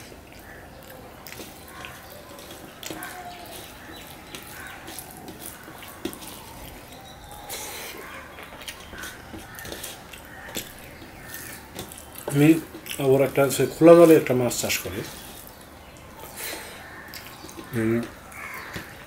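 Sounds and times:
chewing: 0.0s - 19.0s
fingers mixing rice on steel plate: 0.3s - 13.0s.

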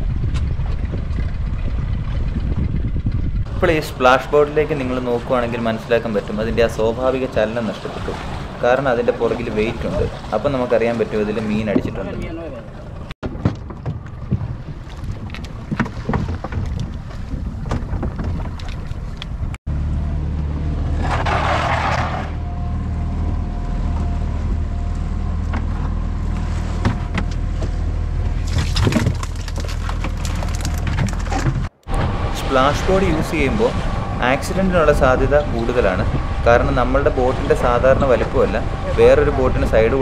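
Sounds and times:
outboard motor humming: 0.0s - 13.1s, 22.3s - 40.0s
sea and wind noise: 0.0s - 40.0s.

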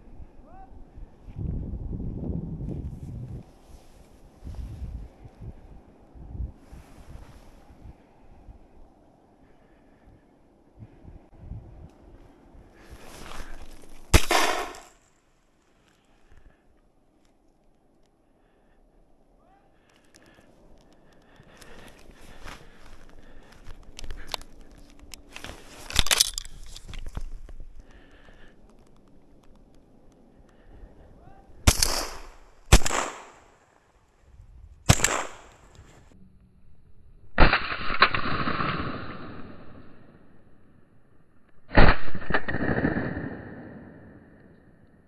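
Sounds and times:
footsteps crunching in snow: 12.8s - 14.1s, 21.5s - 27.8s
shotgun blasts: 14.1s - 14.9s, 31.6s - 33.6s, 34.9s - 35.6s, 41.7s - 44.3s.

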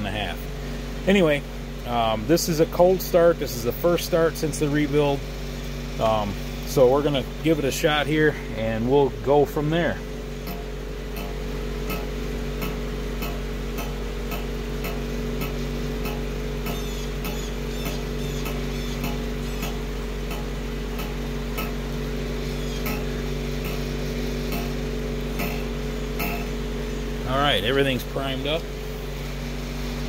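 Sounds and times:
low mechanical hum: 0.0s - 30.0s.

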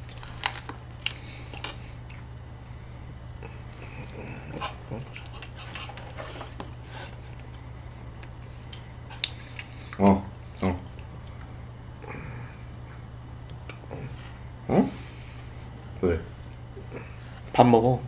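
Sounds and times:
chewing and mouth sounds: 0.0s - 2.3s, 3.1s - 11.5s
steady low hum: 0.0s - 18.0s.

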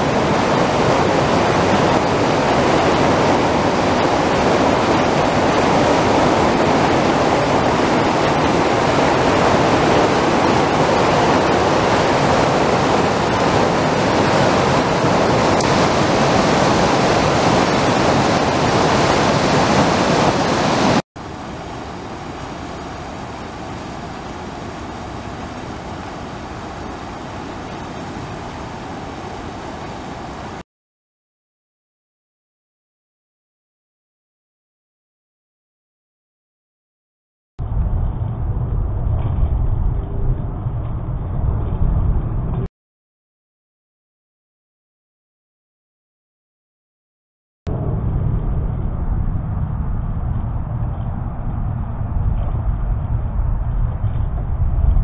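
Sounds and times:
floodwater rushing: 0.0s - 30.6s.

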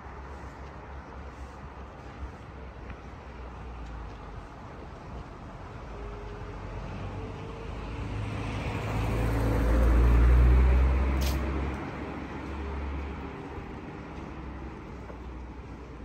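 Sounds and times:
background traffic: 0.0s - 16.0s
vehicle engine passing by: 6.8s - 13.0s.

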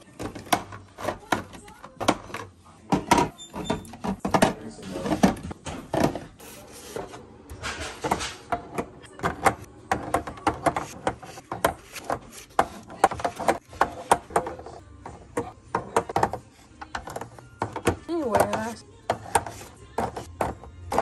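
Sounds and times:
eggs tapping into plastic holder: 8.7s - 21.0s.

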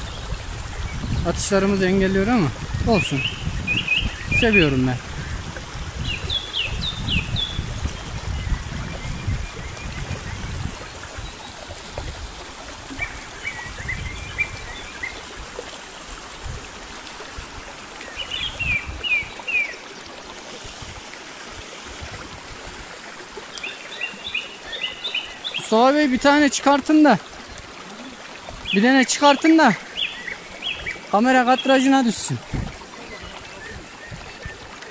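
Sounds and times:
wind rumbling on microphone: 0.0s - 19.5s, 20.4s - 23.2s, 32.3s - 34.9s
stream splashing over rocks: 0.0s - 34.9s.

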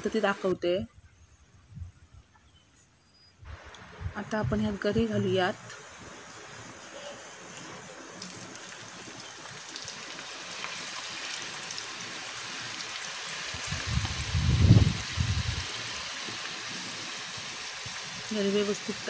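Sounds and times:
jackfruit sizzling in hot oil: 4.2s - 19.0s.

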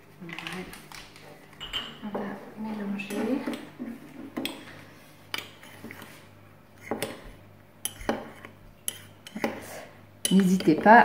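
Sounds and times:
spoon clinking against ceramic mug: 1.6s - 2.0s
spoon stirring dry mix in mug: 5.3s - 11.0s.

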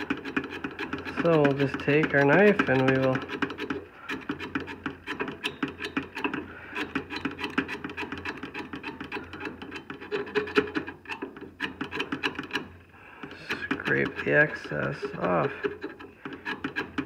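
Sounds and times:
knife blade scraping rust: 0.0s - 12.6s, 13.4s - 17.0s.

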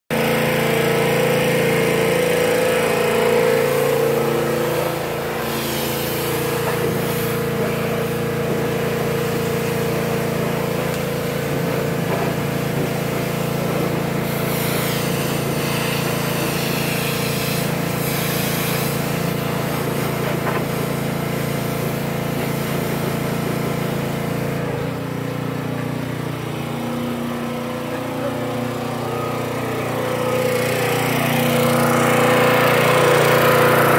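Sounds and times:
small engine running: 0.1s - 33.9s
pressure washer spray hissing: 0.5s - 24.9s.

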